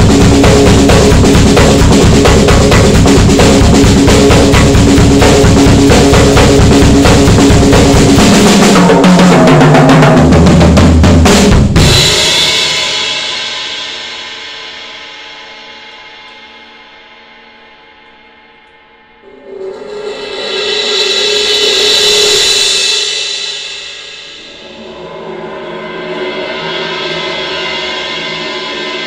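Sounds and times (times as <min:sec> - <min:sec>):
tom fill: 0:00.0 - 0:14.4
drum kit solo: 0:00.0 - 0:17.7, 0:19.2 - 0:29.0
cymbals ringing: 0:12.0 - 0:29.0.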